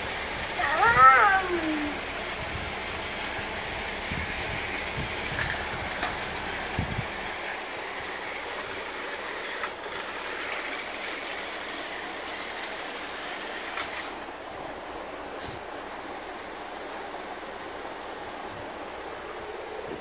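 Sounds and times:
toy train running on track: 0.0s - 15.0s.

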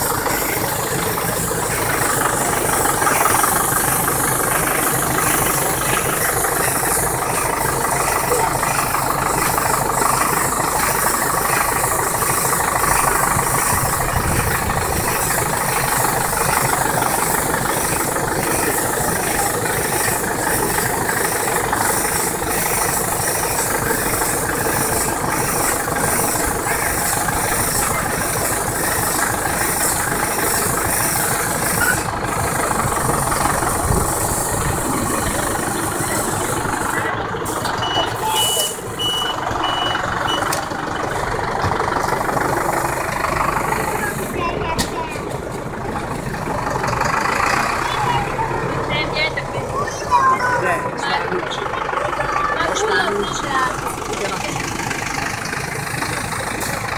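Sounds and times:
tractor engine running: 0.0s - 56.9s
steady beeping tone: 34.6s - 40.6s.

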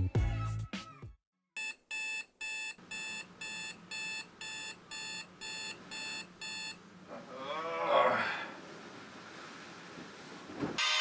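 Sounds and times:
electronic alarm beeping: 1.6s - 6.8s.

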